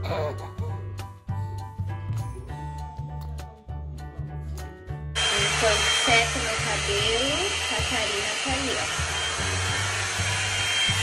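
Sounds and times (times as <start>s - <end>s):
hair dryer blowing: 5.2s - 11.0s.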